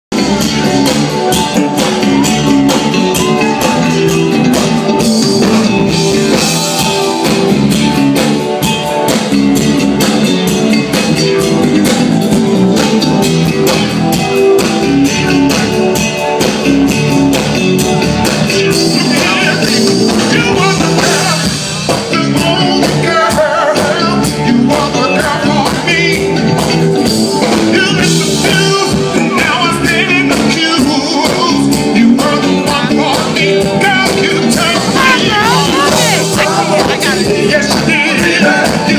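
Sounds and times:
live soul band playing: 0:00.1 - 0:38.9
man singing lead vocal: 0:18.7 - 0:26.8, 0:27.4 - 0:38.9.

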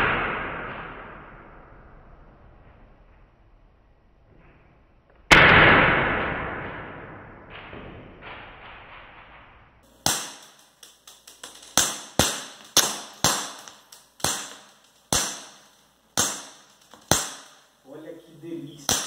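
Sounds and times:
airsoft pistol shots: 0:09.9 - 0:10.8, 0:11.4 - 0:17.7.

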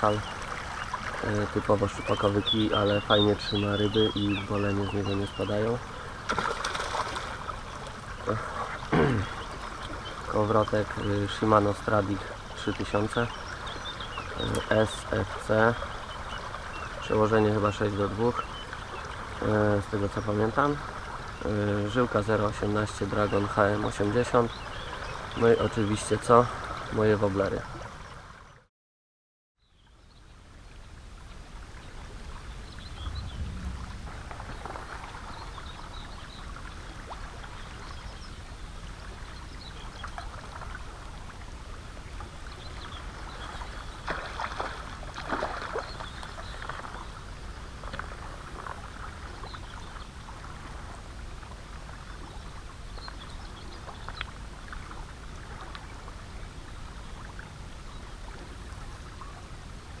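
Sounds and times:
water lapping against rocks: 0:00.0 - 0:25.6, 0:32.5 - 0:38.0, 0:39.0 - 0:56.4
fish splashing at surface: 0:06.3 - 0:07.5.

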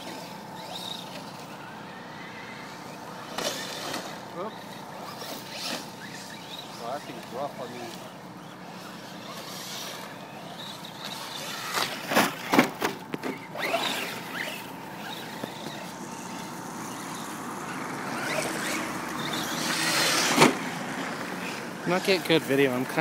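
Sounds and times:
rc trucks driving on dirt: 0:00.0 - 0:23.0
truck landing thud: 0:12.1 - 0:13.5.

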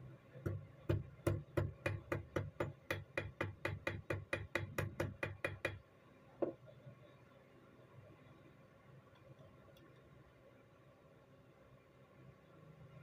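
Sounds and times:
hammer tapping on metal: 0:00.4 - 0:05.8.

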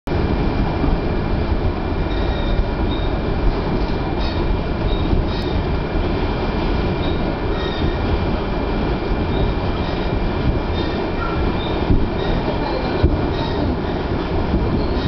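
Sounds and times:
train wheels and motors rumbling: 0:00.1 - 0:15.0
faint wheel squeals: 0:07.0 - 0:08.0.

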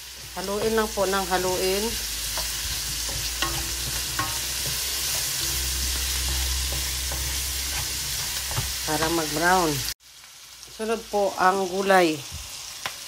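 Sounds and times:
spatula scraping and tapping pan: 0:00.0 - 0:10.0
meat and onions sizzling in oil: 0:00.0 - 0:13.0.

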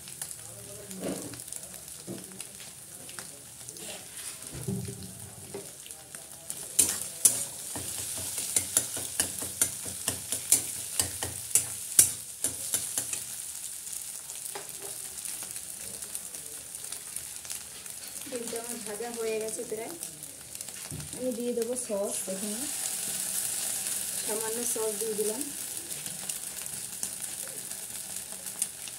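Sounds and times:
eggs sizzling in oil: 0:00.0 - 0:28.9
spatula scraping and clacking pan: 0:06.8 - 0:13.4.

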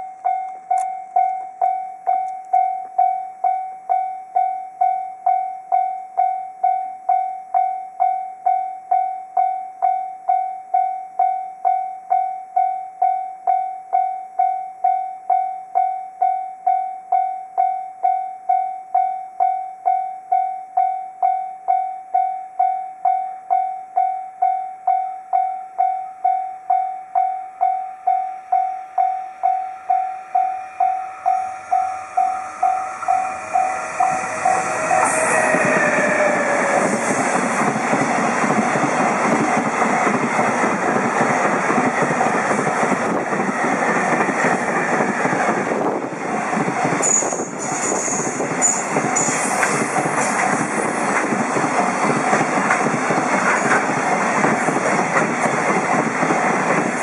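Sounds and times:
level crossing bell ringing: 0:00.0 - 0:35.0
freight train passing: 0:27.6 - 0:57.0.

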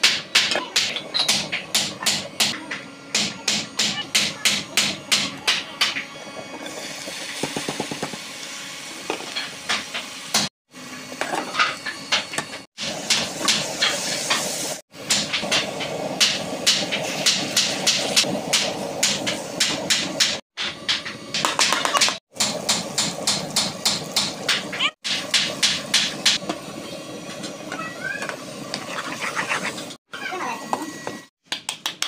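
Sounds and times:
batter hissing on hot pan: 0:12.8 - 0:14.8.

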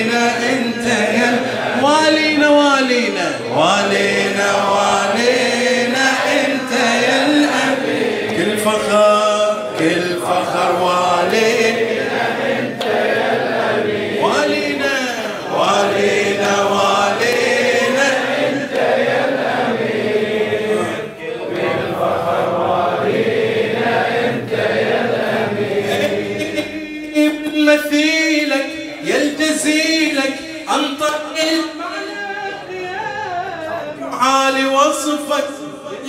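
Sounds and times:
amplified man's voice leading: 0:00.0 - 0:12.6, 0:13.4 - 0:19.1, 0:25.6 - 0:36.0
crowd of men chanting: 0:00.0 - 0:27.0.

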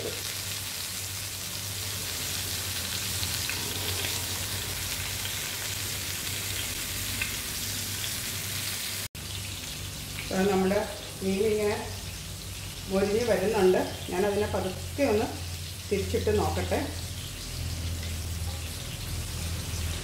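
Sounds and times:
fish sizzling in a pan: 0:00.0 - 0:20.0.

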